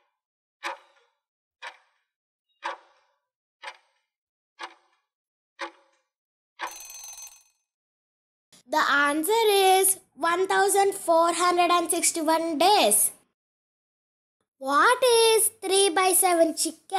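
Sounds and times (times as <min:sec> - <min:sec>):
clock-like timer ticks: 0:00.6 - 0:02.0, 0:02.6 - 0:05.0, 0:05.6 - 0:06.0.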